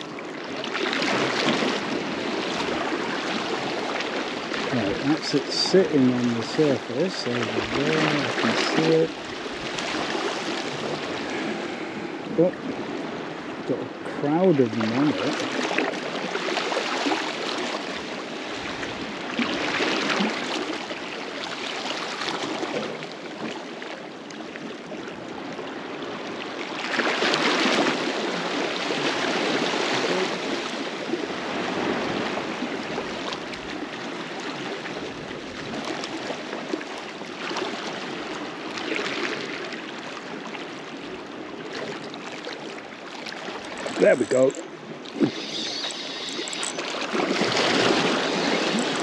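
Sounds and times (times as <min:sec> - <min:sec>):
water lapping against rocks: 0:00.0 - 0:23.1, 0:41.4 - 0:49.0
small waves washing in: 0:00.0 - 0:49.0.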